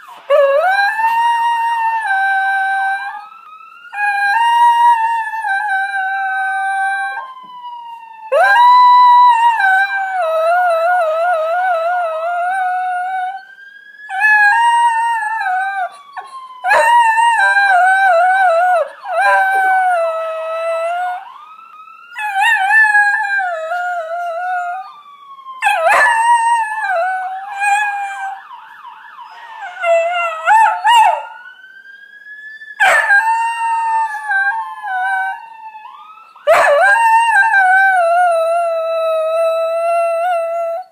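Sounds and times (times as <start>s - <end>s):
police siren wailing: 0.0s - 40.9s
dog howling: 14.1s - 21.2s, 25.6s - 28.5s, 29.2s - 31.4s, 32.8s - 35.5s, 36.5s - 40.9s.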